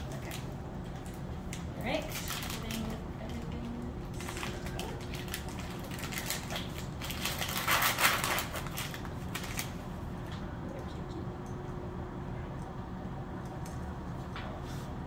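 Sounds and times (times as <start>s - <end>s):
paper and plastic pouch crinkling: 0.0s - 9.8s.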